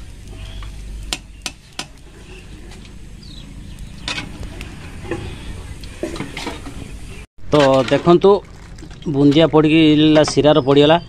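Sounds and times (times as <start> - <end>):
low steady rumble: 0.0 - 7.3.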